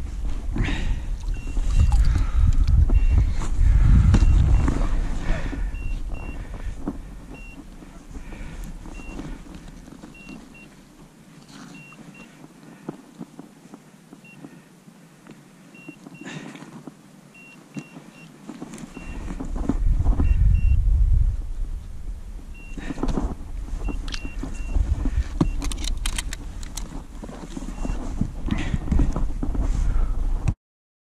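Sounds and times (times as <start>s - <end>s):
wind rumble on microphone: 0.0s - 10.6s, 18.8s - 30.6s
knocks clicks and rustles of handling: 22.9s - 29.7s.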